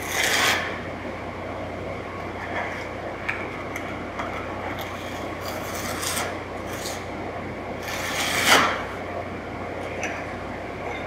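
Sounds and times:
trowel scraping mortar: 0:07.8 - 0:08.8.

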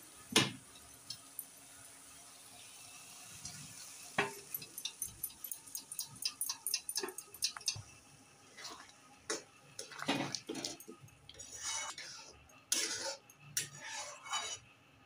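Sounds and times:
metal spatula scraping metal pot: 0:09.8 - 0:14.7.

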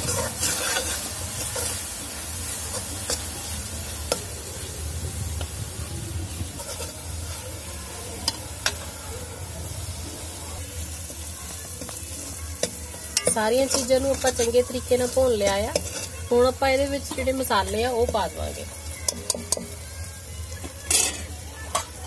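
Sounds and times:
steel ladle scraping pan: 0:00.0 - 0:01.8, 0:06.6 - 0:07.1, 0:12.2 - 0:19.8, 0:20.6 - 0:22.0
masala sizzling in oil: 0:00.0 - 0:22.0.

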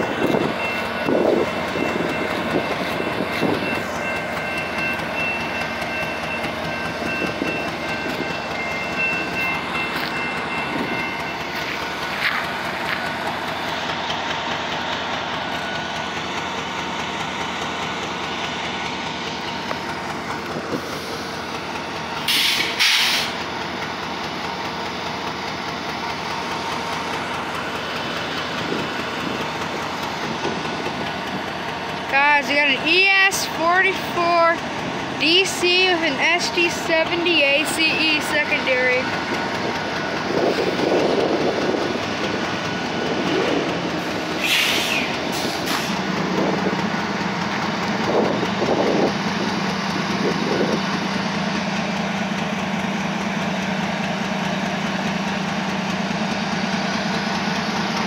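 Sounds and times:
steady high tone: 0:00.0 - 0:12.7, 0:32.1 - 0:44.2
freight train passing: 0:00.0 - 0:58.0
wheels rumbling on rail: 0:00.0 - 0:58.0.

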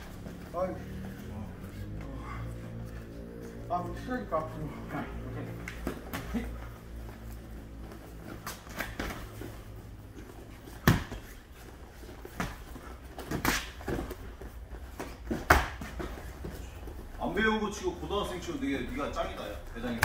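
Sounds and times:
low room hum: 0:00.0 - 0:20.0
boxing glove punches slapping: 0:10.8 - 0:11.4, 0:13.2 - 0:14.2, 0:15.2 - 0:16.0.

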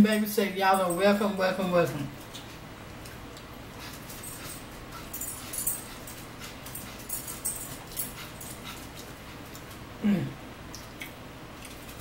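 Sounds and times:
chewing and mouth smacks: 0:02.2 - 0:07.0, 0:10.6 - 0:12.0.

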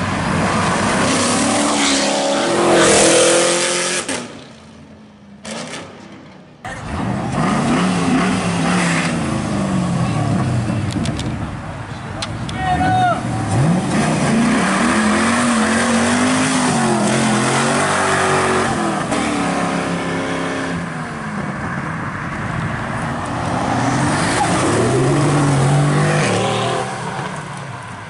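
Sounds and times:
car engine accelerating hard: 0:13.2 - 0:21.0, 0:22.9 - 0:27.8
sports car engine passing: 0:13.2 - 0:28.0.

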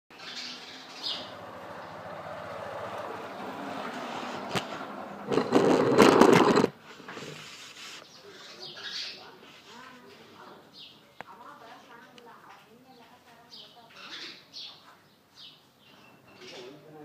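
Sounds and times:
sparrow chirps: 0:00.1 - 0:02.0, 0:08.0 - 0:09.4, 0:12.9 - 0:16.8.

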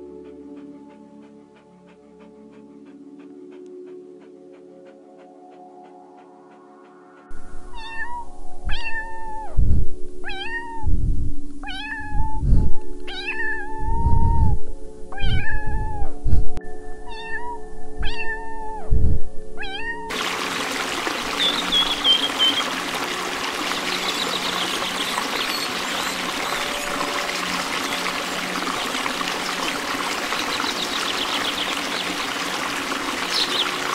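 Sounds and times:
running water: 0:20.1 - 0:33.9
high chirps: 0:21.1 - 0:33.9.

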